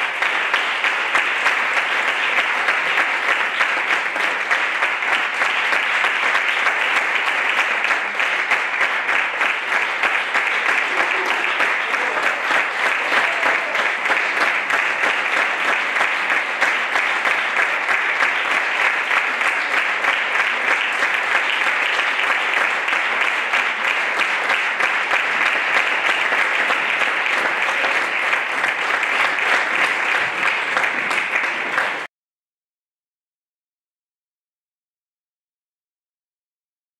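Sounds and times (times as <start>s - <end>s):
audience applauding: 0.0s - 32.1s.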